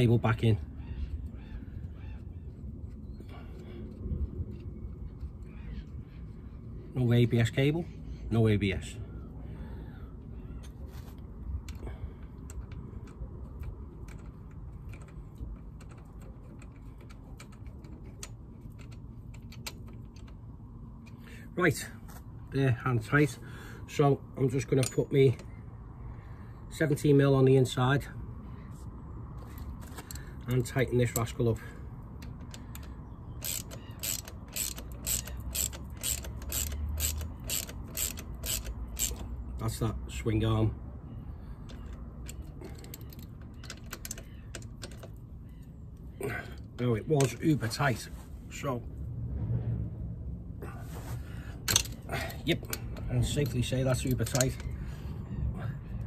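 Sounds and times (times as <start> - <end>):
low background rumble: 0.0 - 56.0
ratchet wrench clicking: 32.2 - 39.3, 41.7 - 45.2.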